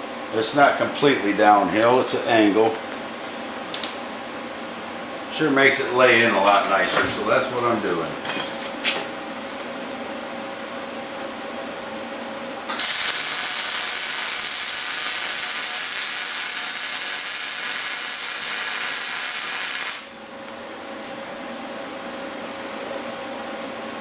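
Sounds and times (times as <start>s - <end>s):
welding arc crackling: 12.7s - 20.2s.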